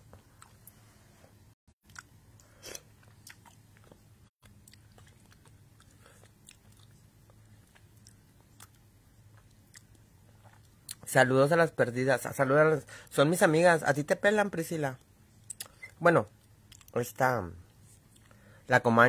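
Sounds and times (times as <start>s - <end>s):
person chewing food: 0.0s - 0.8s, 1.8s - 11.0s, 15.4s - 17.0s, 17.8s - 18.5s
steady low hum: 0.0s - 19.0s.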